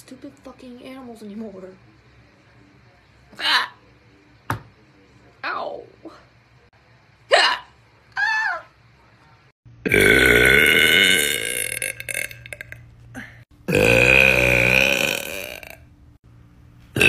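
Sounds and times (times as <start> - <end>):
woman belching: 9.9 - 12.8, 13.7 - 15.9.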